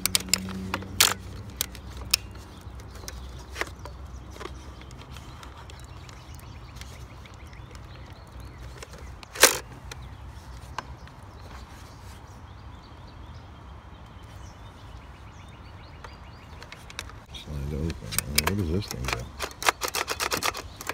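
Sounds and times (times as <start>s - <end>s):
hard plastic toy clack: 0.0s - 10.0s, 16.5s - 20.9s.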